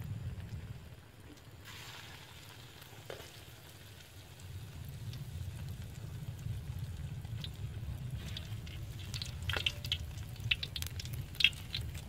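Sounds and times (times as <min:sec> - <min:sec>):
fritters sizzling in hot oil: 0:00.0 - 0:12.0
low rumble: 0:04.4 - 0:12.0.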